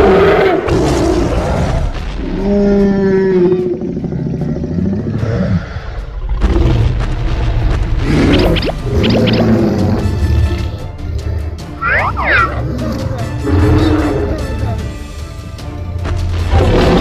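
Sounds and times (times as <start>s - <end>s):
cartoon monster roaring and growling: 11.8s - 14.6s.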